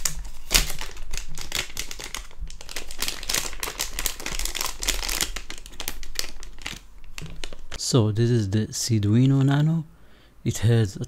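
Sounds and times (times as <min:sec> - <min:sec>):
plastic bag crinkling: 0:00.0 - 0:07.9.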